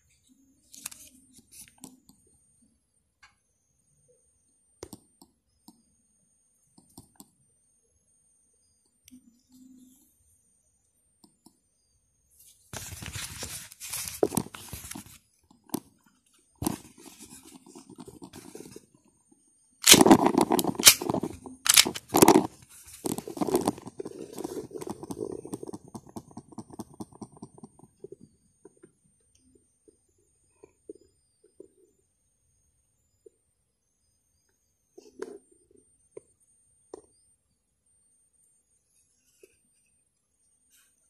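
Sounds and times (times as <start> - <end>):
pistol handling scraping: 19.8 - 24.4
pistol sharp clicks: 20.8 - 21.0, 21.7 - 22.0.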